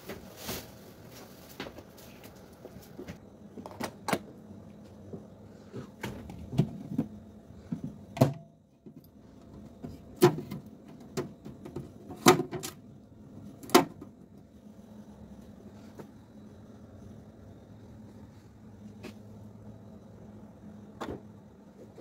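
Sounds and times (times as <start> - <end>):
fridge trays and door knocking: 7.8 - 8.5, 9.8 - 12.8.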